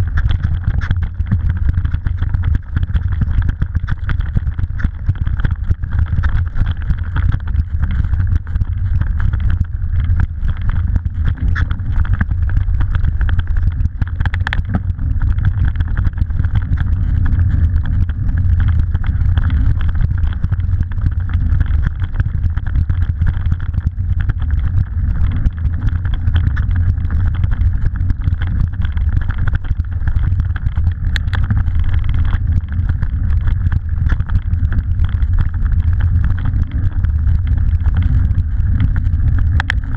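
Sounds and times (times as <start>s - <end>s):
wind buffeting microphone: 0.0s - 6.3s.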